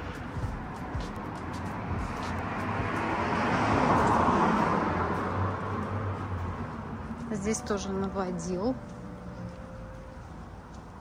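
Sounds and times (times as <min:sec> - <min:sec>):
car passing by: 0:00.0 - 0:08.2.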